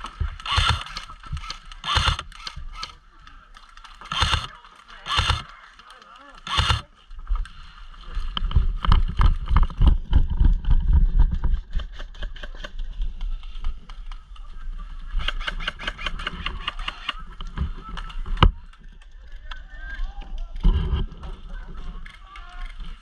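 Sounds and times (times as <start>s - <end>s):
airsoft gunfire clicks: 0.4s - 3.0s, 4.0s - 5.6s, 6.4s - 6.9s.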